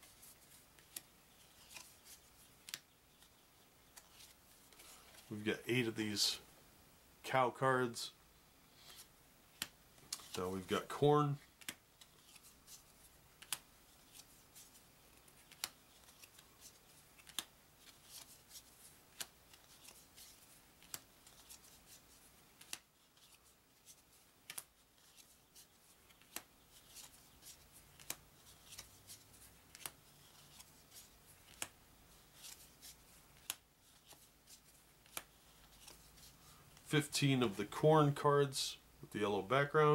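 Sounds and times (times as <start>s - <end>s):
cards flicking and sliding: 0.1s - 5.3s, 8.8s - 10.4s, 11.5s - 36.9s
cards snapping onto a pile: 17.2s - 17.5s, 31.5s - 31.7s.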